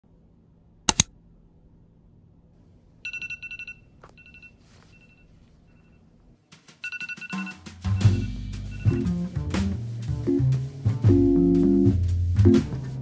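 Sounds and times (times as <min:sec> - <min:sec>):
sharp clicks: 0:00.9 - 0:01.1
phone alarm beeping: 0:03.1 - 0:06.0, 0:06.8 - 0:09.2.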